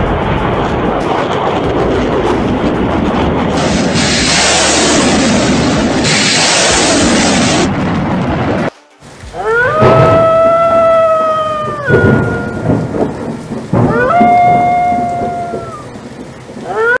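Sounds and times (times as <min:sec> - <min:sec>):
thunder: 0:00.0 - 0:08.7, 0:09.6 - 0:17.0
steady rain: 0:00.0 - 0:17.0
wolf howling: 0:09.4 - 0:12.9, 0:13.8 - 0:15.9.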